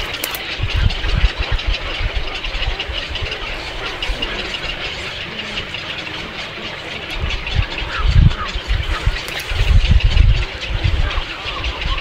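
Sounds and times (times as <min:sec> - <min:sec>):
flock of birds chattering: 0:00.0 - 0:12.0
wind rumbling on microphone: 0:00.0 - 0:12.0.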